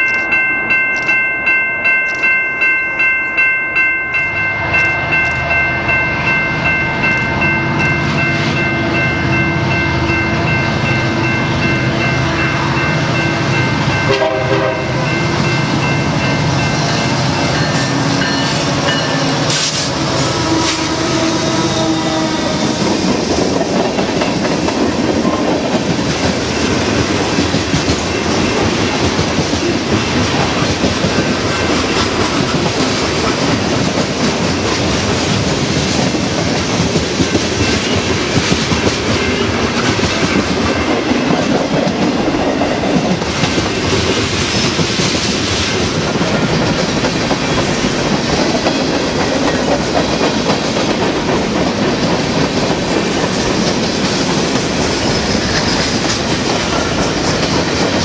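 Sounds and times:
train wheel roar and clickety-clack: 0:03.0 - 0:58.0
locomotive horn: 0:14.0 - 0:15.4, 0:18.0 - 0:22.9.

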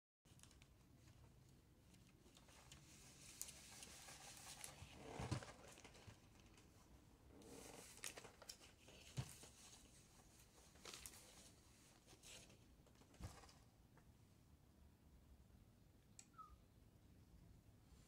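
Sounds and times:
paper rustling and crinkling: 0:00.3 - 0:06.7, 0:07.5 - 0:13.7.

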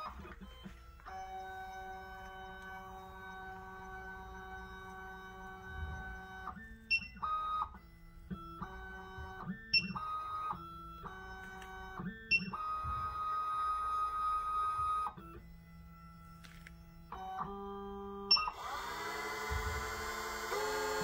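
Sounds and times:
key-cutting machine motors whining: 0:00.0 - 0:21.0.

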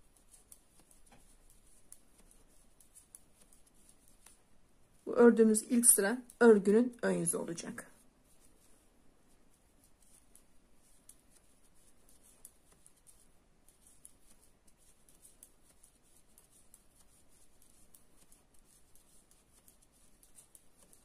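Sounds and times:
knitting needles clicking: 0:00.0 - 0:05.1.

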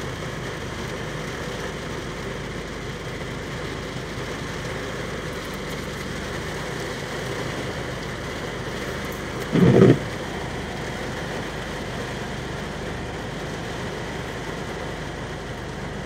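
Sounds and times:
steady rain falling: 0:00.0 - 0:16.0.

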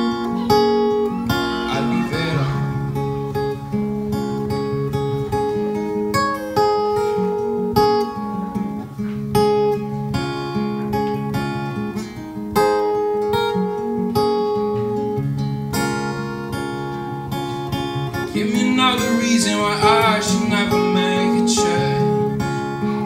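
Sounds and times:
acoustic guitar strumming: 0:00.0 - 0:23.0
young man singing: 0:01.4 - 0:02.9, 0:18.1 - 0:23.0.

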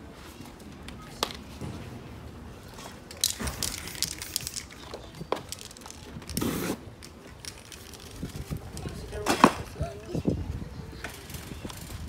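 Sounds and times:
crinkling crackling noises: 0:02.5 - 0:12.0.

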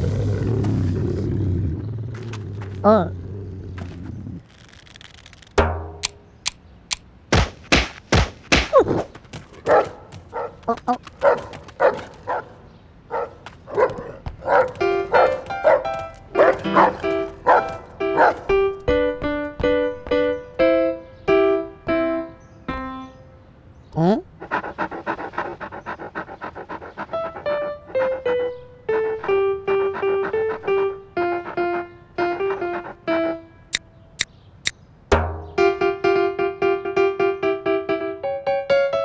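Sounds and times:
sharp knocks: 0:05.6 - 0:06.2, 0:07.3 - 0:09.6, 0:35.1 - 0:35.6
bouncing piano notes: 0:14.0 - 0:23.3, 0:35.1 - 0:39.0.

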